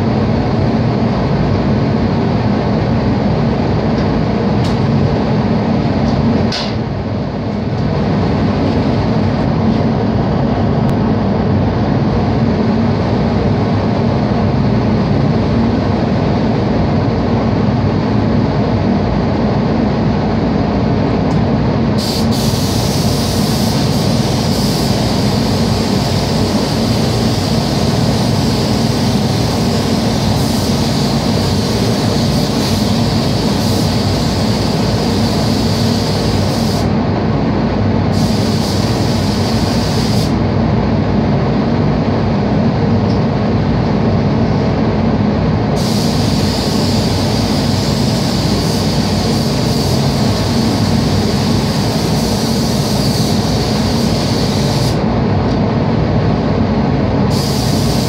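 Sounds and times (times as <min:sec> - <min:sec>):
ventilation fans rushing: 0:00.0 - 0:58.0
paint spray gun hissing: 0:22.0 - 0:36.9, 0:38.1 - 0:40.4, 0:45.8 - 0:55.0, 0:57.3 - 0:58.0.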